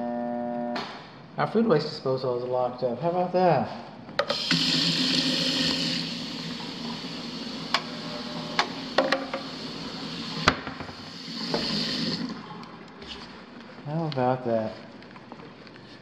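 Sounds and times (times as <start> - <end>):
water running into sink: 4.2 - 12.6
disposal motor humming: 4.2 - 13.0.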